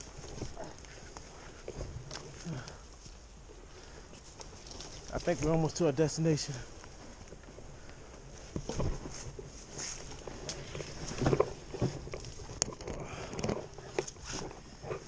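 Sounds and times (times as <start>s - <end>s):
twigs rustling and snapping: 0.0s - 15.0s
footsteps crunching through dry leaves: 4.2s - 7.5s.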